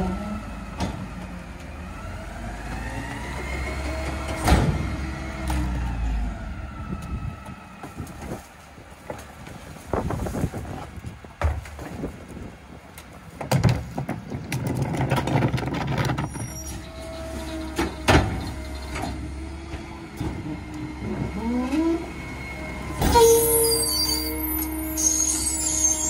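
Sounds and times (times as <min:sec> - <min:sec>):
truck engine revving: 0:00.0 - 0:07.5
hydraulic packer whining: 0:00.0 - 0:08.4, 0:14.6 - 0:26.0.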